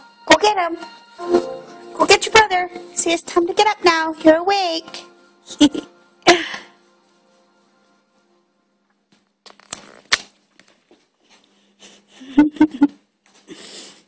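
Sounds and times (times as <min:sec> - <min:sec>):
footsteps: 0:00.8 - 0:08.4, 0:10.6 - 0:12.0.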